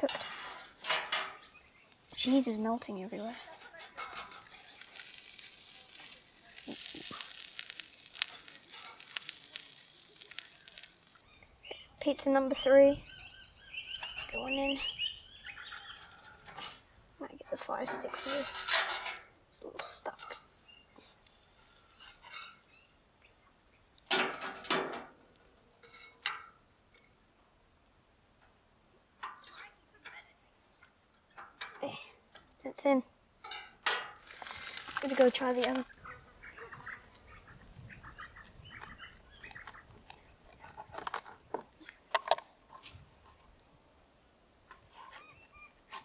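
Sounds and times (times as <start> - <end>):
metal utensils clattering and scraping: 0.0 - 1.4, 3.1 - 5.9, 17.8 - 19.2
pizza sizzling: 0.0 - 11.9, 20.4 - 22.8
sharp clicks and ticks: 4.0 - 12.7.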